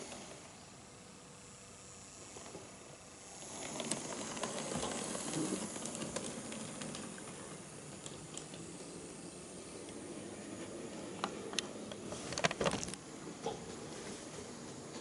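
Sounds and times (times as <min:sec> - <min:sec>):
model train motor hiss: 0:00.0 - 0:13.3
wheels clicking on track: 0:03.4 - 0:12.1.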